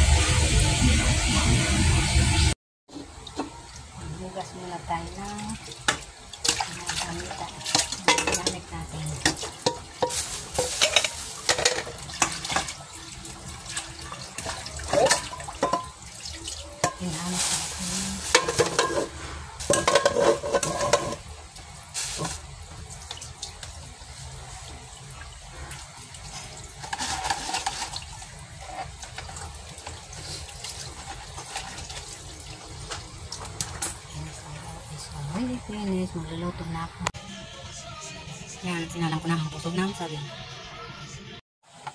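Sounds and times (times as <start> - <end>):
water splashing in a basin: 5.1 - 19.0, 22.0 - 33.8.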